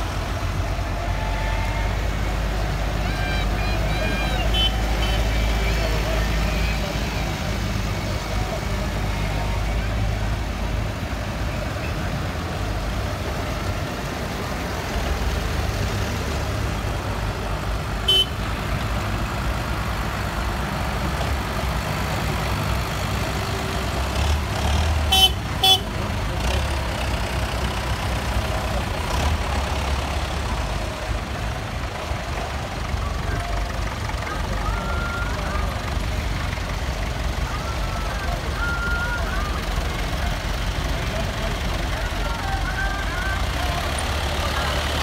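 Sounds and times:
tractor engines rumbling: 0.0s - 45.0s
vehicle horn tooting: 3.0s - 5.5s, 18.0s - 18.4s, 25.1s - 25.9s.

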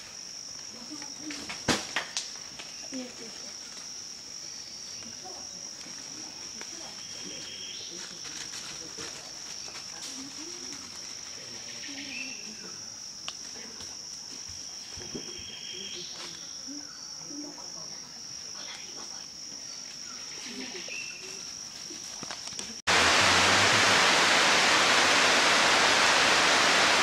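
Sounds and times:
insects droning: 0.0s - 27.0s.

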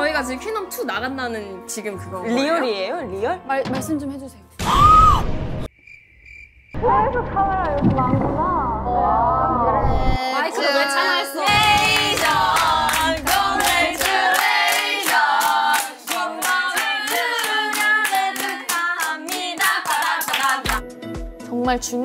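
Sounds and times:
women singing together: 10.3s - 20.8s
hands clapping in time: 11.6s - 21.0s.

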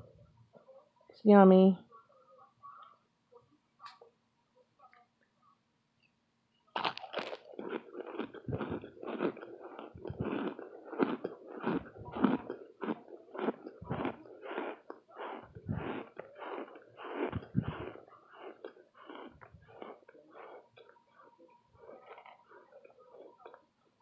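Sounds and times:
person crunching food: 6.7s - 21.0s, 21.8s - 23.7s.

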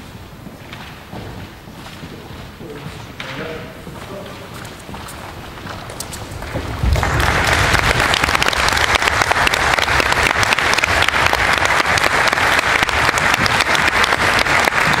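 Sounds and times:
audience applauding: 5.2s - 15.0s.

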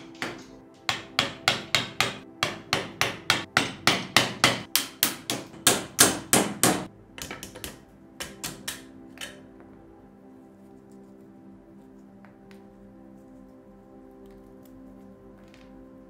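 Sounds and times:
hammer striking chisel: 0.0s - 9.4s.

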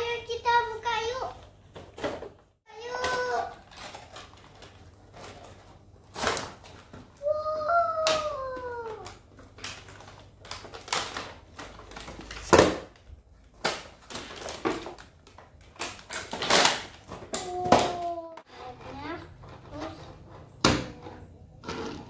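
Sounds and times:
packaging rustling: 9.0s - 17.3s.

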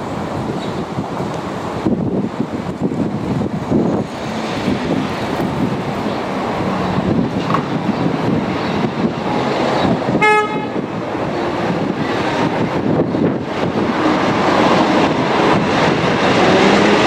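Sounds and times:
diesel locomotive engine rumble: 0.0s - 17.0s
wind on microphone: 0.0s - 17.0s
locomotive horn toot: 10.2s - 10.8s.

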